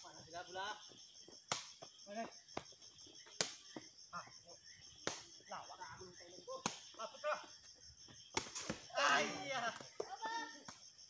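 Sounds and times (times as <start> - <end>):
crickets chirring: 0.0 - 11.0
players shouting: 8.9 - 10.6.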